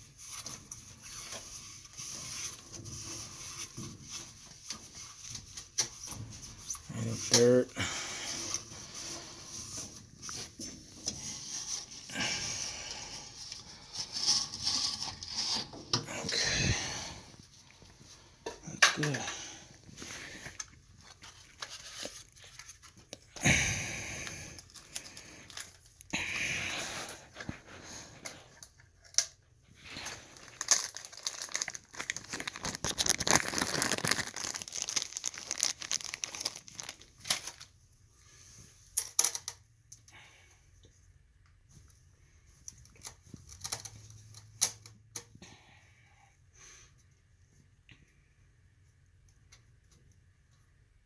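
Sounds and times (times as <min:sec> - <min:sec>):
plastic bag rustling: 0:08.3 - 0:23.2, 0:29.7 - 0:37.8.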